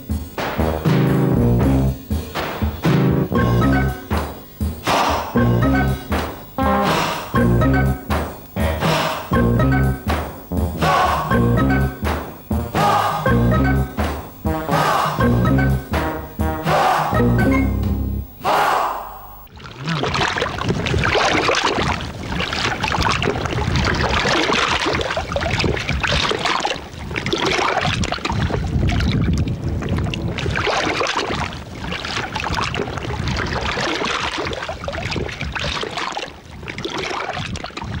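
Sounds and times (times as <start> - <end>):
water sloshing in surges: 19.5 - 38.0.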